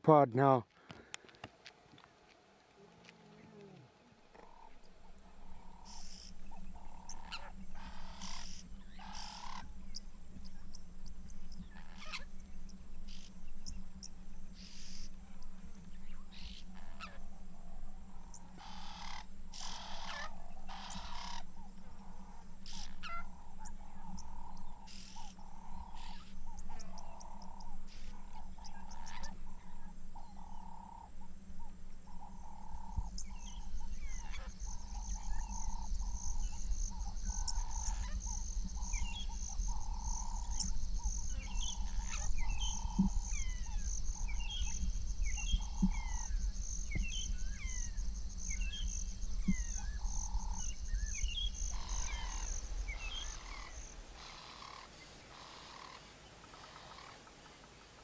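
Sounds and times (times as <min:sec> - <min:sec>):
bird calls: 0:03.3 - 0:17.3, 0:18.0 - 0:58.0
steady low hum: 0:03.6 - 0:58.0
fast pulsing insect chirr: 0:04.4 - 0:58.0
repeated animal call: 0:05.6 - 0:09.7, 0:18.4 - 0:23.4, 0:30.3 - 0:57.4.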